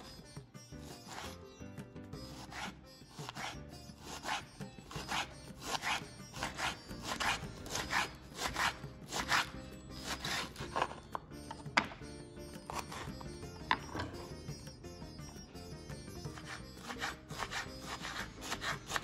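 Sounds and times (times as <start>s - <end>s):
quiet background music: 0.0s - 19.0s
knife slicing cabbage on board: 0.8s - 1.4s, 2.2s - 11.1s, 12.7s - 13.1s, 16.4s - 19.0s.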